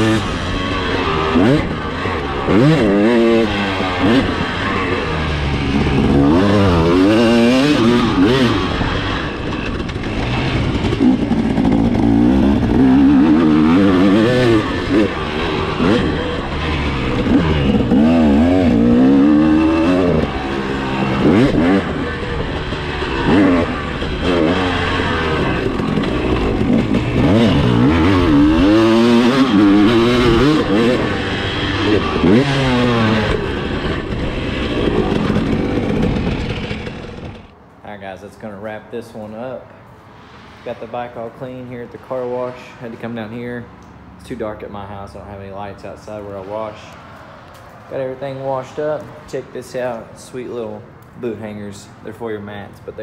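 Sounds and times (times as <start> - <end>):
motocross bike engine revving: 0.0 - 37.5.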